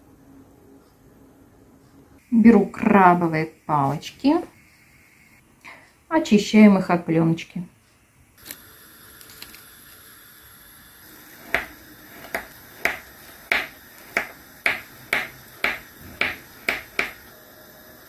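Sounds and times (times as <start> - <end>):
knife chopping on cutting board: 11.4 - 17.2.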